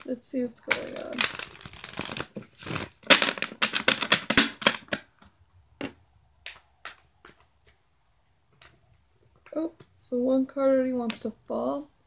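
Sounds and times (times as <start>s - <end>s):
cards being shuffled: 0.0s - 5.2s
cards tapping: 0.6s - 7.8s.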